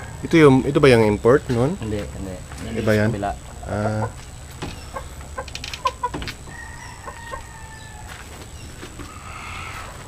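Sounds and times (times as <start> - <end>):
chickens clucking: 0.0 - 10.0
sharp knocks: 4.5 - 6.6
rooster crowing: 6.0 - 8.4, 9.0 - 10.0.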